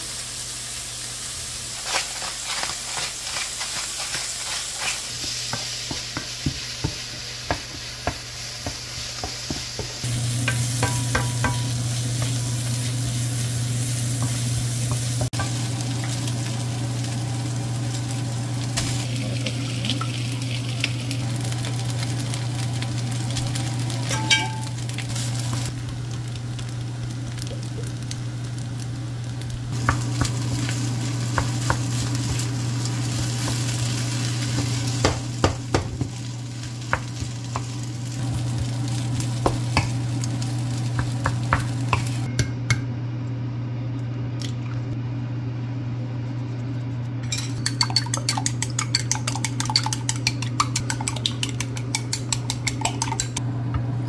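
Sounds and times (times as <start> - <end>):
food sizzling in a wok: 0.0 - 42.3
utensils tapping on pan: 1.9 - 12.4, 24.1 - 24.8, 34.5 - 36.2, 38.3 - 40.0, 40.8 - 42.8, 47.2 - 53.4.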